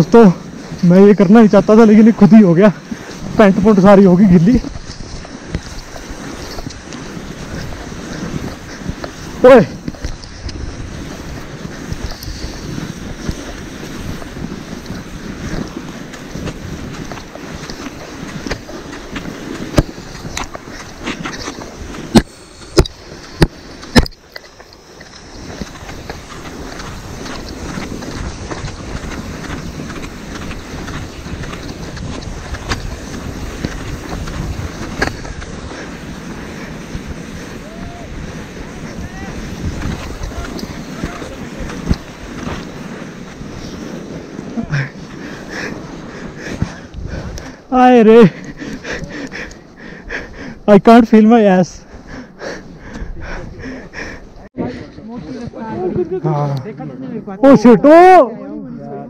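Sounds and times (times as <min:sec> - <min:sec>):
wind buffeting microphone: 0:00.0 - 0:50.9, 0:51.5 - 0:59.0
snow scraping under sliding person: 0:00.0 - 0:59.0
small clicks and crunches: 0:04.4 - 0:35.8, 0:38.8 - 0:43.8.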